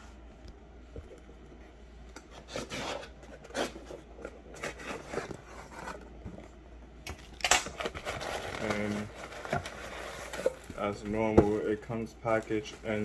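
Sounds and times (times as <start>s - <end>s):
packing tape tearing: 7.1s - 10.7s.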